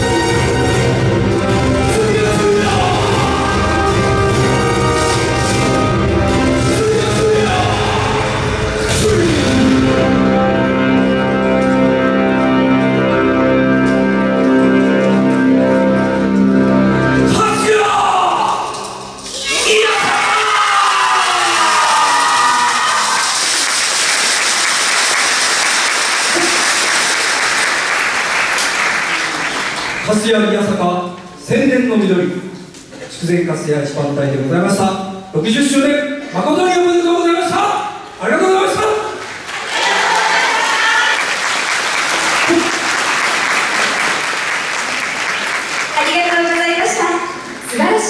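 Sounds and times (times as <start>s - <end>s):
audience applauding: 20.7s - 30.4s, 39.0s - 47.7s.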